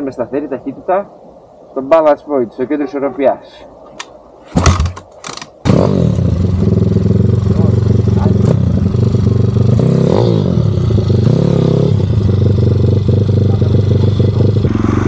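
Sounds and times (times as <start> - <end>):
motorbike engine revving: 5.6 - 15.0.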